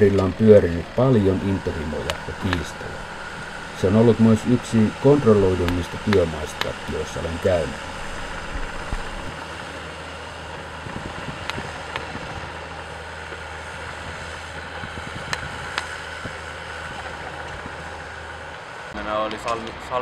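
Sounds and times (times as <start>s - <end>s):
diesel engine running: 0.0s - 20.0s
sharp clicks: 1.2s - 9.3s.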